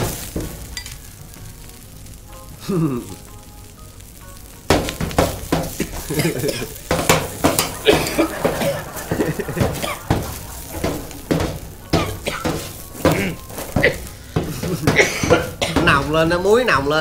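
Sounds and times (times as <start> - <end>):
background music: 0.0 - 17.0
greens sizzling in a pan: 0.0 - 17.0
metal spatula scraping a pan: 4.8 - 15.9.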